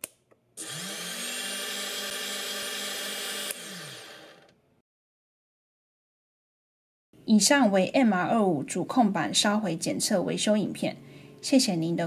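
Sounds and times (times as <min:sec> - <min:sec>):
small motor whining: 0:00.6 - 0:04.6.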